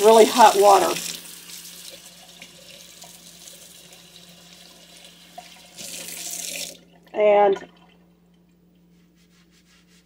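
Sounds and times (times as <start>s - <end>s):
faucet water splashing on metal: 0.0s - 7.0s.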